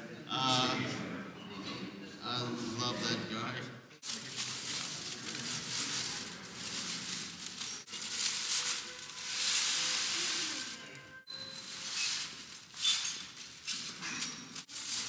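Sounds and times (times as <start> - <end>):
aluminium foil crinkling: 4.0 - 15.0.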